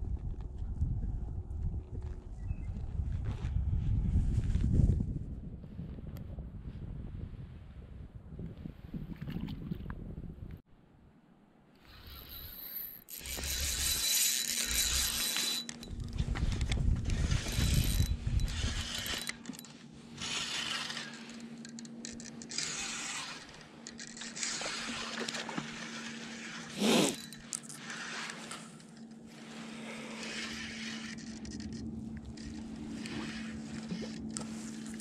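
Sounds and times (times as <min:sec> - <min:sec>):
fishing reel whirring and rattling: 0:11.8 - 0:35.0.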